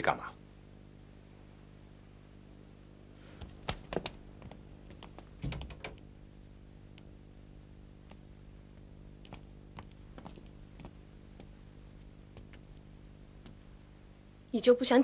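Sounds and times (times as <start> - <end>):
footsteps across a room: 3.2 - 6.1, 7.9 - 13.8.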